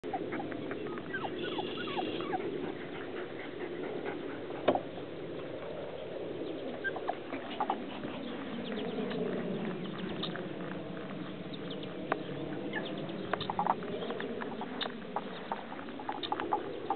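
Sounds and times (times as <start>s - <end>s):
puppies whimpering: 0.0s - 5.6s, 6.6s - 11.7s, 12.3s - 16.9s.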